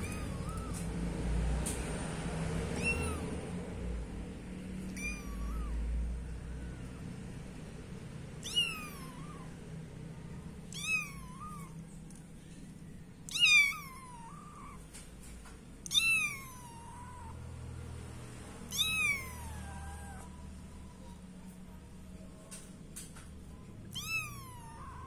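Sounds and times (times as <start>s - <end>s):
kitten meowing: 0.0s - 1.2s, 2.6s - 3.6s, 4.7s - 7.0s, 8.4s - 9.6s, 10.6s - 12.0s, 13.2s - 15.1s, 15.8s - 17.5s, 18.6s - 21.2s, 23.8s - 25.0s.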